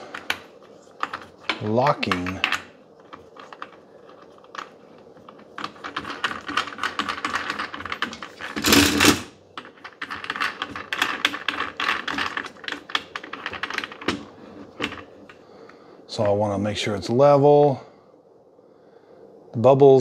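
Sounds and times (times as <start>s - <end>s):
tripod handle clicking and rattling: 0.0s - 15.4s.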